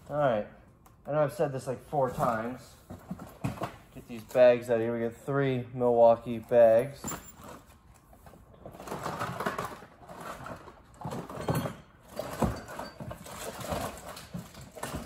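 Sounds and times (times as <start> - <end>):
hands rummaging through tools: 6.8 - 15.0.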